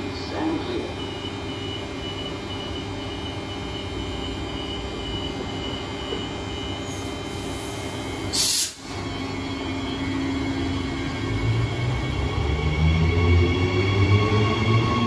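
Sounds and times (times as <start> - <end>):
train electrical hum: 0.0 - 15.0
door-closing warning beeps: 0.9 - 7.0
short loud hiss: 8.3 - 8.8.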